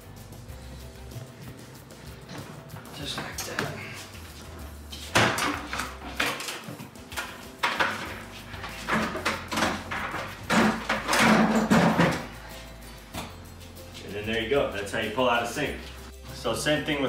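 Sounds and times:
sink knocking and clunking: 0:05.1 - 0:12.3.

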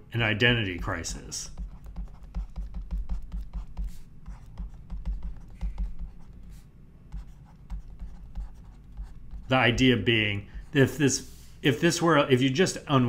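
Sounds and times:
stylus tapping and scratching tablet: 0:00.5 - 0:09.9.

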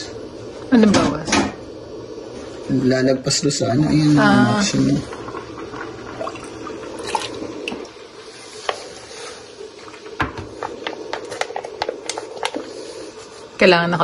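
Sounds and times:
immersion circulator hum: 0:00.0 - 0:14.0
water splashing: 0:04.7 - 0:12.9.

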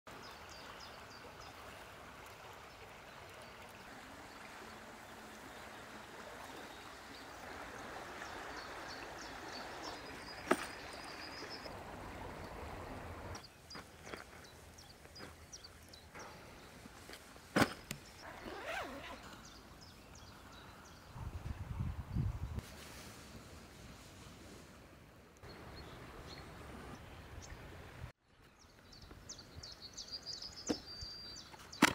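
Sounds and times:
shallow river running: 0:00.1 - 0:21.6, 0:22.5 - 0:31.9
small birds chirping: 0:08.2 - 0:11.7, 0:13.3 - 0:21.2, 0:28.3 - 0:31.9.

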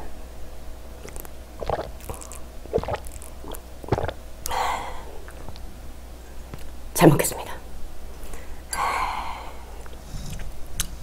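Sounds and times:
person swallowing water: 0:01.0 - 0:04.6, 0:05.2 - 0:05.7
breathy exhale: 0:04.5 - 0:05.2, 0:08.2 - 0:10.5.

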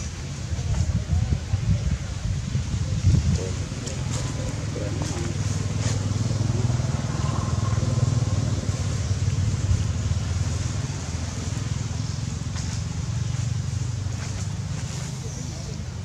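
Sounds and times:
vehicle engine running: 0:03.4 - 0:16.0.

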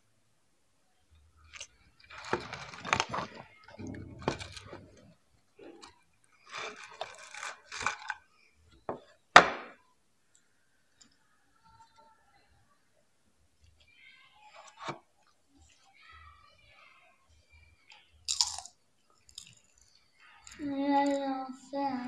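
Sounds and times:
chip crunch: 0:01.5 - 0:05.0, 0:06.4 - 0:08.2, 0:18.3 - 0:19.8
potato chips rustling: 0:01.6 - 0:05.0, 0:06.4 - 0:08.2, 0:18.3 - 0:21.3.

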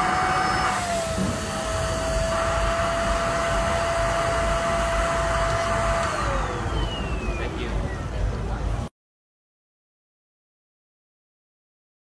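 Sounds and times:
handheld vacuum motor whining: 0:00.0 - 0:07.8.

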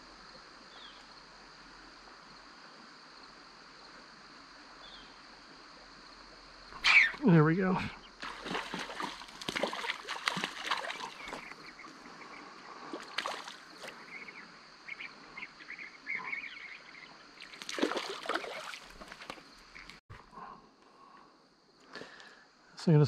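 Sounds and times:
fish splashing at water surface: 0:08.2 - 0:11.6, 0:12.9 - 0:14.0, 0:17.4 - 0:19.4.

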